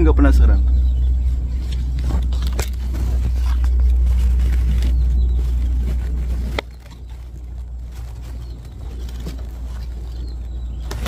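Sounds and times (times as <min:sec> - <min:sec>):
low rumble: 0:00.0 - 0:11.0
leaves and twigs rustling and snapping: 0:01.3 - 0:11.0.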